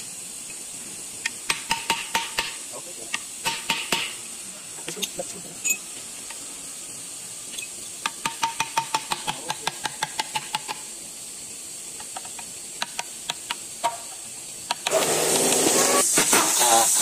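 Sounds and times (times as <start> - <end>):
pneumatic impact wrench running: 12.8 - 17.0.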